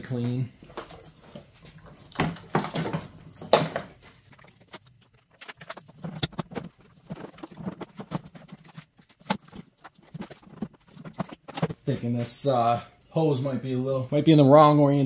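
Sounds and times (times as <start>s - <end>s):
plastic knocks and clicks: 5.6s - 11.8s.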